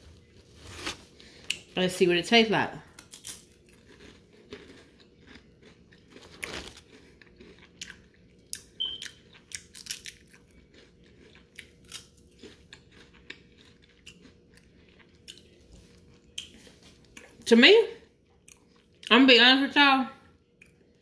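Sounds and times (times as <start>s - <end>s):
crunching cracker bites: 3.0s - 15.6s.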